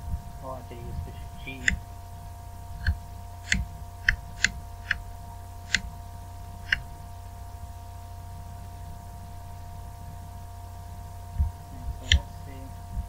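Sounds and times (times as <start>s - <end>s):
electrical hum: 0.0s - 13.0s
toggle switch clicks: 1.5s - 1.8s, 2.8s - 5.0s, 5.7s - 5.9s, 6.6s - 6.9s, 12.0s - 12.3s.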